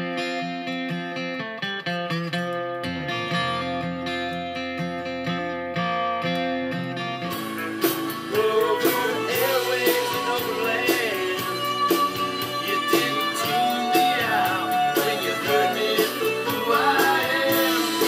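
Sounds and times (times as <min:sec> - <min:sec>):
guitar: 0:00.0 - 0:18.0
drums: 0:07.2 - 0:18.0
person singing: 0:07.4 - 0:18.0.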